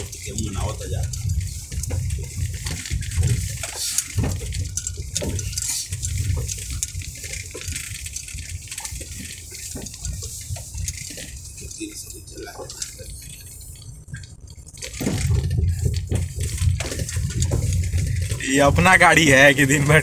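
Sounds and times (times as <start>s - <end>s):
tyres rumbling on rough road: 0.0s - 20.0s.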